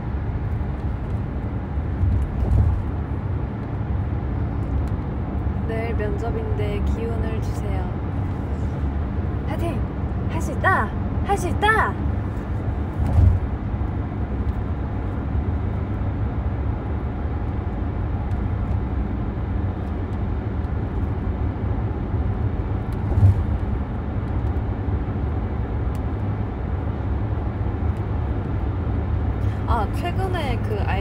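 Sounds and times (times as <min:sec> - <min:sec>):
car cabin rumble: 0:00.0 - 0:26.4
short thump: 0:02.0 - 0:02.9, 0:13.0 - 0:13.5, 0:23.0 - 0:23.7.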